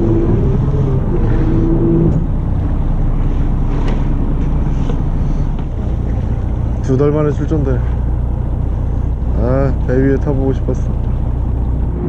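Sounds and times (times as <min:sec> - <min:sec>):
humming tone: 0:00.0 - 0:06.8, 0:10.9 - 0:12.0
boat engine rumble: 0:00.0 - 0:12.0.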